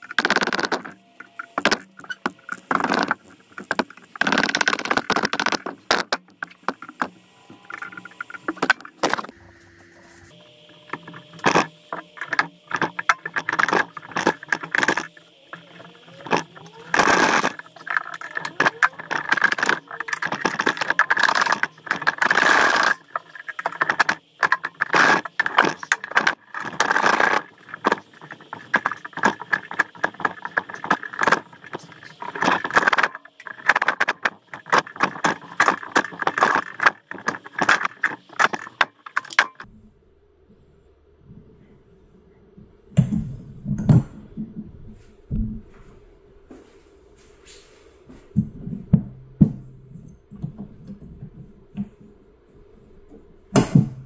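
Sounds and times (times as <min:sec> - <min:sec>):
metal engine parts clanking: 0:10.9 - 0:39.7.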